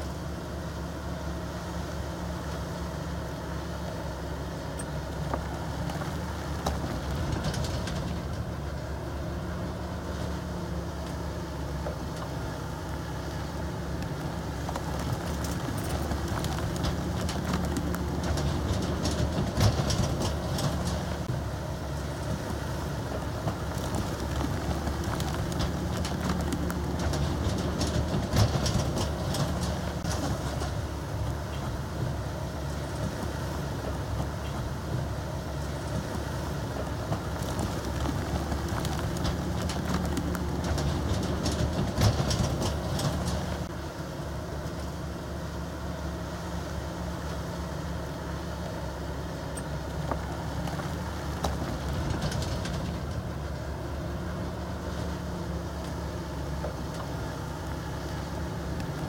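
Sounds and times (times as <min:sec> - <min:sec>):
bulldozer diesel engine: 0:00.0 - 0:59.0
metallic clatter of tracks: 0:04.8 - 0:09.0, 0:13.4 - 0:21.3, 0:22.2 - 0:32.2, 0:35.8 - 0:43.8, 0:49.6 - 0:54.4.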